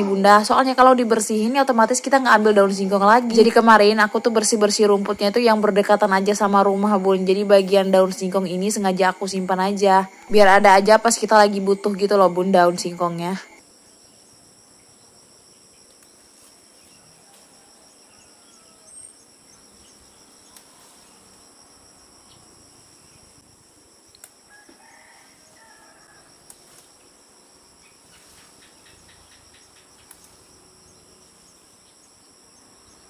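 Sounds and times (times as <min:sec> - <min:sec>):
insect chorus: 0:00.0 - 0:33.0
leaves snapping: 0:20.5 - 0:20.8, 0:26.4 - 0:26.9, 0:30.0 - 0:30.4
faint chicken call: 0:24.5 - 0:26.4.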